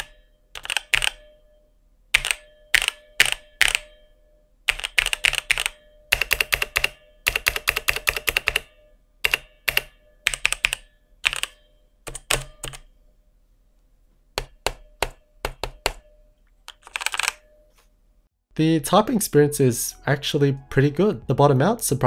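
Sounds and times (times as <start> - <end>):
mechanical keyboard typing: 0.0 - 1.2, 2.2 - 3.9, 4.7 - 12.8, 14.4 - 16.1, 16.7 - 17.4.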